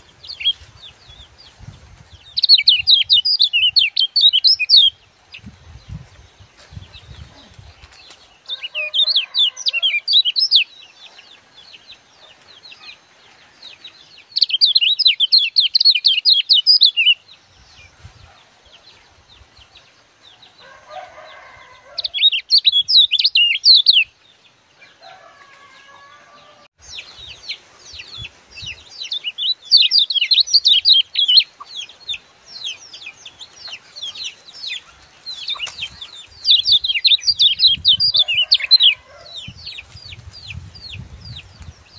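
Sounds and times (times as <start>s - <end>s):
bird chattering song: 2.2s - 6.0s, 6.7s - 13.0s, 13.7s - 18.3s, 22.0s - 24.1s, 26.9s - 41.9s.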